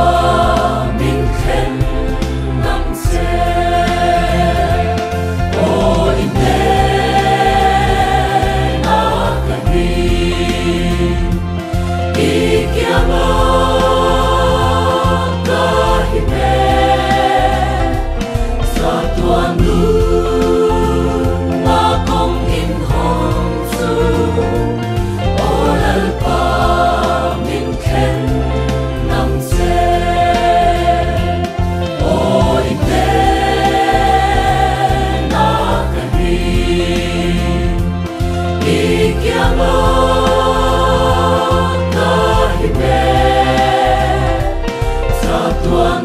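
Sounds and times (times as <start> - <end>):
mixed choir singing in harmony: 0.0 - 46.0.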